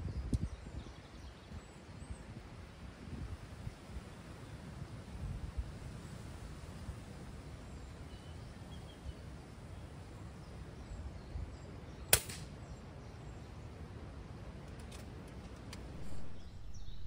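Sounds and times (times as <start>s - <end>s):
air rifle shot: 12.1s - 12.6s.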